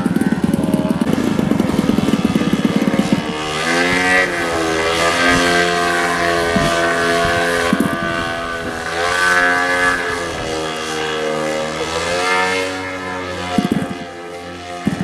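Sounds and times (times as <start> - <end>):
model airplane engine and propeller: 0.0 - 15.0.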